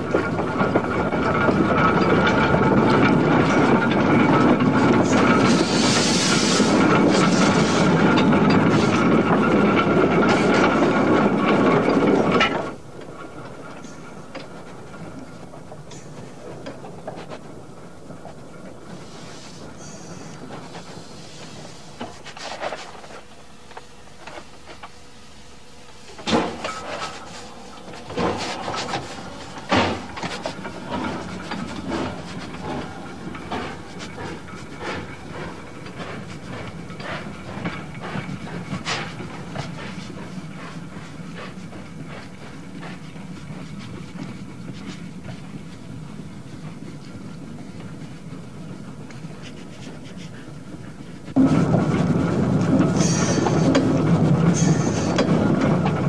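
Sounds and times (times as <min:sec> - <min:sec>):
steam exhaust chuffs: 0:00.0 - 0:12.1, 0:26.1 - 0:56.0
steam locomotive running noise: 0:00.0 - 0:56.0.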